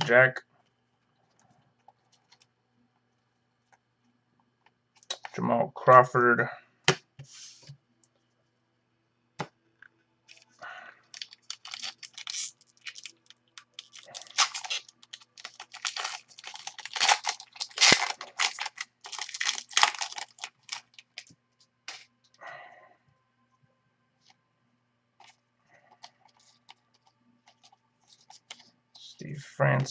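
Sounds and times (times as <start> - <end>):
card wrapper crinkling: 10.3 - 21.3, 25.2 - 28.7.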